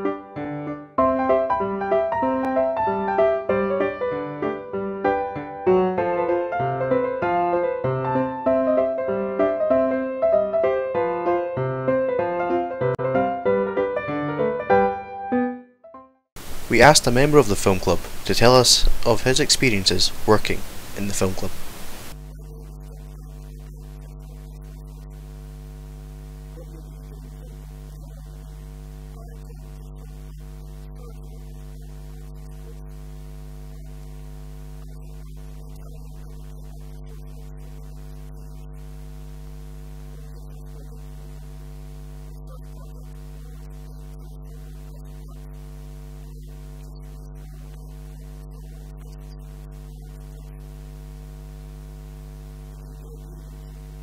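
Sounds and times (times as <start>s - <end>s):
electrical mains hum: 16.4s - 54.0s.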